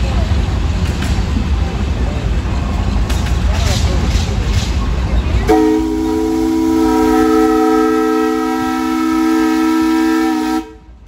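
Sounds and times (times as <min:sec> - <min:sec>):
steam whistle chord: 0:05.5 - 0:10.8.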